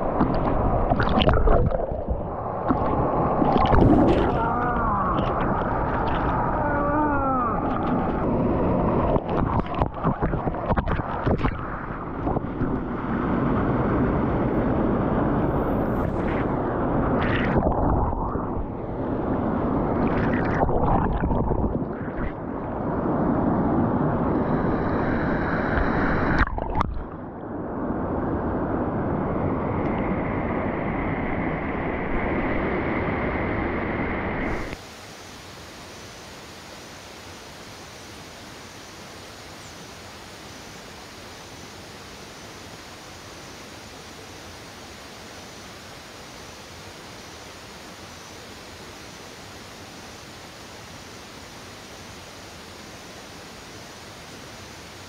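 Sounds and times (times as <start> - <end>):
water gurgling and splashing: 0.0 - 13.5, 15.8 - 24.0, 25.6 - 27.2
steady rush of water: 0.0 - 55.0.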